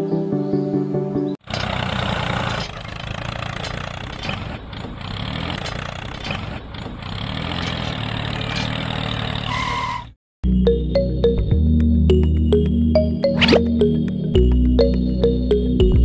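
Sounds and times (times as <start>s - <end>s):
toy tractor engine rattle: 1.4s - 10.1s.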